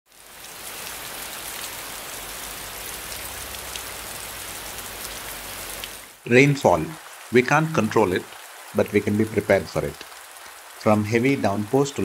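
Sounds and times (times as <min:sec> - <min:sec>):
rain hissing: 0:00.1 - 0:12.0
raindrop ticks: 0:02.8 - 0:12.0.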